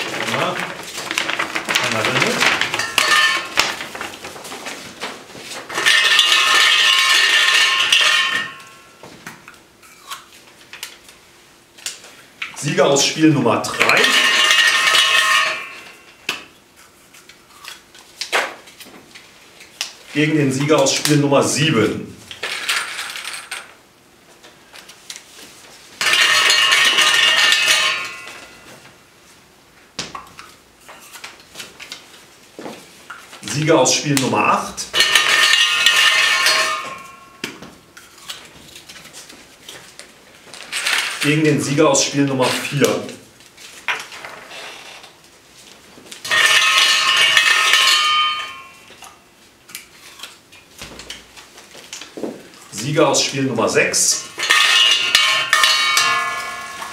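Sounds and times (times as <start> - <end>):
lots clattering in metal cup: 0.0 - 4.2, 5.7 - 8.8, 26.0 - 28.5, 54.1 - 56.9.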